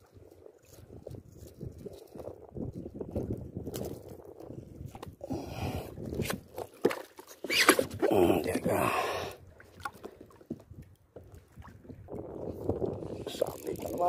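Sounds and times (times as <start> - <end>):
wind on microphone: 0.0 - 6.7, 10.5 - 14.0.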